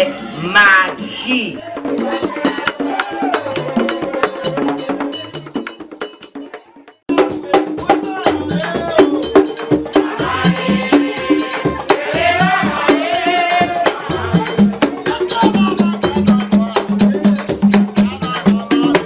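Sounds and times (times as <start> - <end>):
music with shaker and percussion beat: 0.8 - 19.0.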